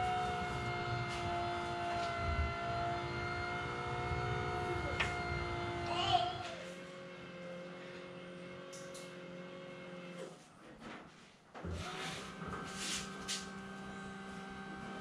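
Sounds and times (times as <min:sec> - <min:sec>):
electric actuator motor whining: 0:00.0 - 0:10.3.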